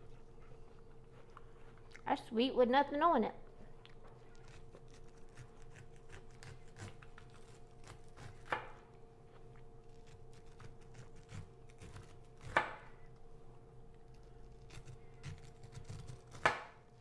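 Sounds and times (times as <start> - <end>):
knife cutting corn kernels: 4.2 - 8.7, 9.9 - 12.9, 14.0 - 16.8.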